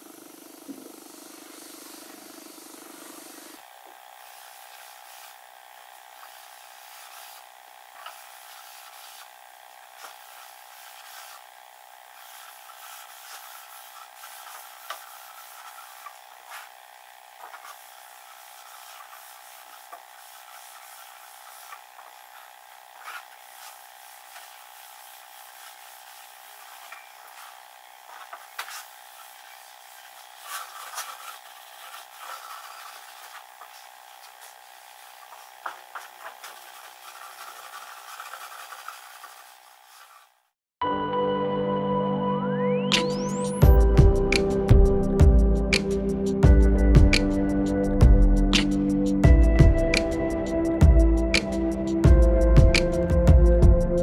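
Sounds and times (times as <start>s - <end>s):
pad wiping wood: 4.2s - 5.4s, 6.1s - 11.4s, 12.2s - 16.8s, 17.4s - 40.4s
steady hum: 42.9s - 54.0s.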